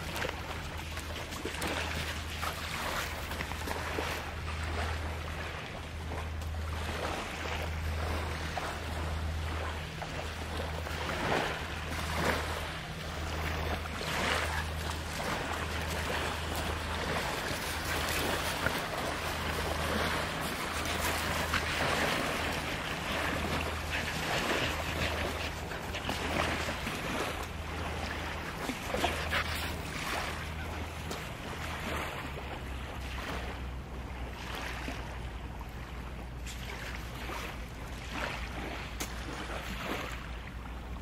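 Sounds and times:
low steady hum: 0.0 - 41.0
small waves washing ashore: 0.0 - 41.0
dog digging in sand: 14.0 - 27.3, 28.5 - 30.4.

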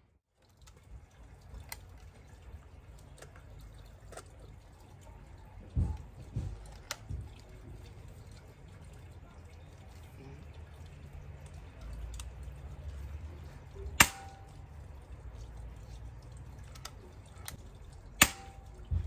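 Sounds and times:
dull low thumps: 18.6 - 19.0.

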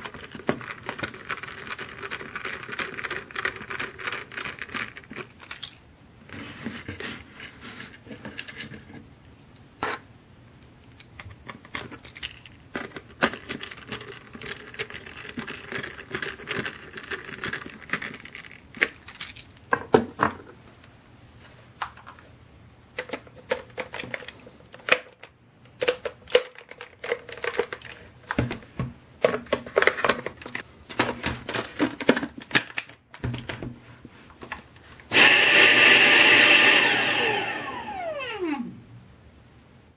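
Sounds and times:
plastic parts clicking and knocking: 0.0 - 9.1, 10.8 - 20.9, 22.9 - 33.8
vacuum motor whining: 35.1 - 38.8.

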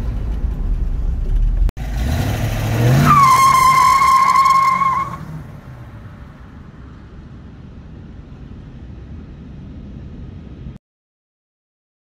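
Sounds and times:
distant car engine rumble: 0.0 - 10.8.

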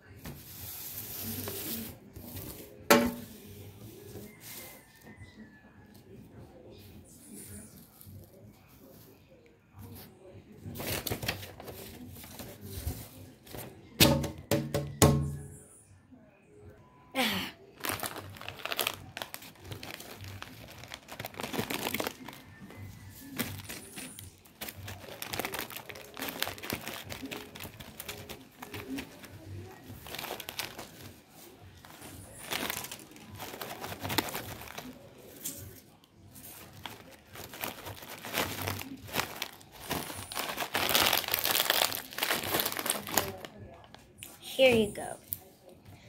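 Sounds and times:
plastic snack bag crinkling: 17.8 - 44.1.

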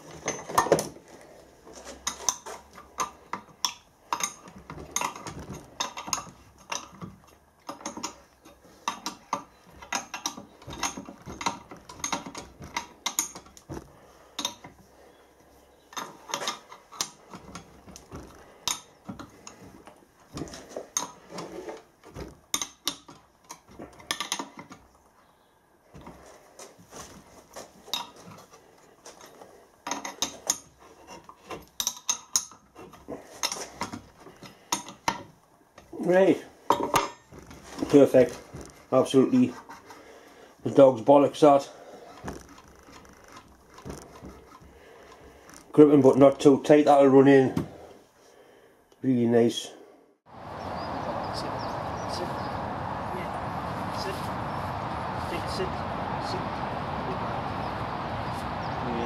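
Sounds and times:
metal tools clinking: 0.1 - 0.8, 1.8 - 13.7.

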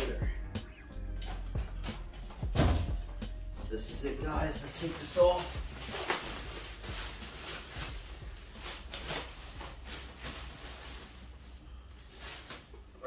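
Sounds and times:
plastic wrapping crinkling: 4.6 - 13.0.

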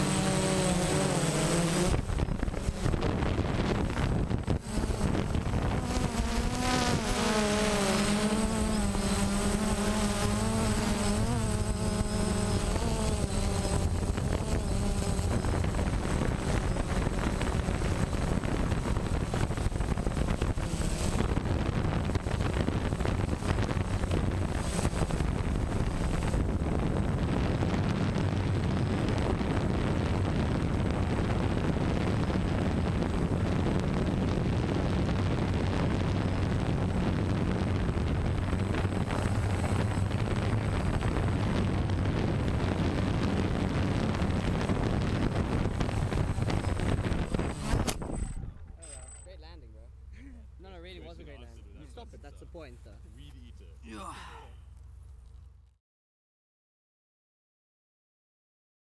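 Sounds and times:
drone propellers buzzing: 0.0 - 49.3.

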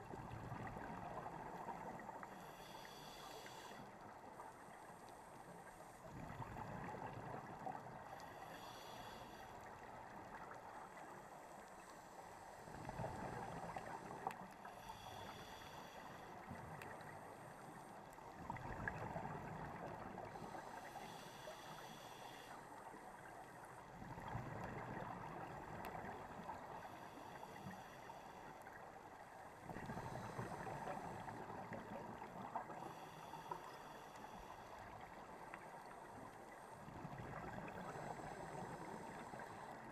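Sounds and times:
regulator inhale hiss: 2.2 - 4.0, 8.1 - 9.8, 11.8 - 18.1, 20.2 - 22.9, 26.6 - 28.8, 29.8 - 31.7, 32.6 - 35.1.

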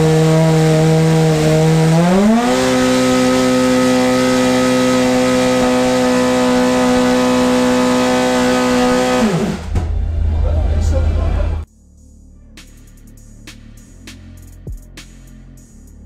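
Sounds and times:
racing car engine revving: 0.0 - 11.7.

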